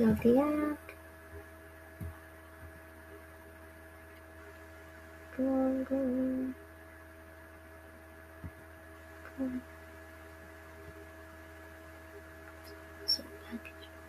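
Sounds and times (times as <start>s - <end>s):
faint steady tones: 0.0s - 14.0s
low electrical hum: 0.0s - 14.0s.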